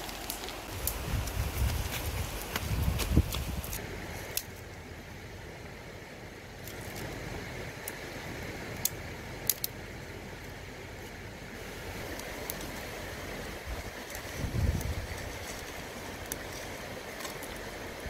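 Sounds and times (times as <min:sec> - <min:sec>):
dry twigs clicking and snapping: 0:00.0 - 0:04.7, 0:06.6 - 0:07.1, 0:08.7 - 0:09.8, 0:12.0 - 0:12.8, 0:13.8 - 0:17.8
steady outdoor hiss: 0:00.0 - 0:18.0.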